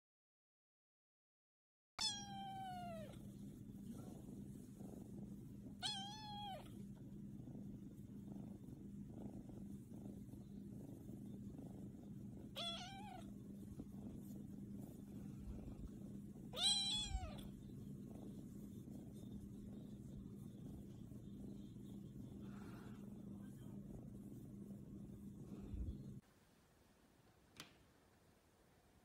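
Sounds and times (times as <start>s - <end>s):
kitten meowing: 2.0s - 3.1s, 5.8s - 6.7s, 12.5s - 13.2s, 16.5s - 17.5s
kitten purring: 2.0s - 26.2s.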